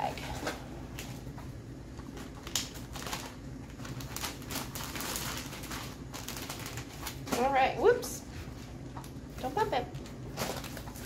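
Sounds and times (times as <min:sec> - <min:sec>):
plastic bag crinkling: 0:02.0 - 0:07.8, 0:09.4 - 0:11.0.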